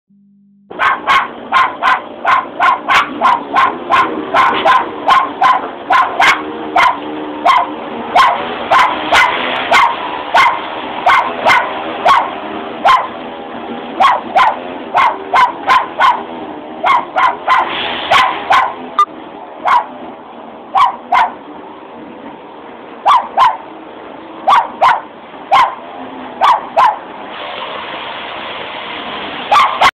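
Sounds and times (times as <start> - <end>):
parrot imitating dog barks: 0.7 - 13.2, 29.5 - 29.9.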